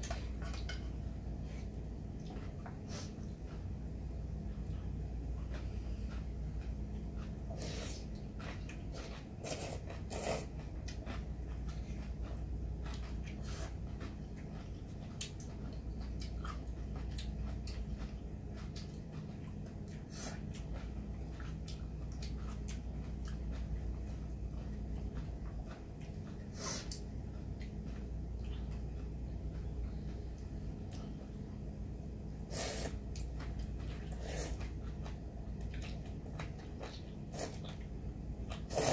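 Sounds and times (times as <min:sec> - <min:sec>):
low hum: 0:00.0 - 0:38.9
noodles slurped: 0:38.5 - 0:38.9.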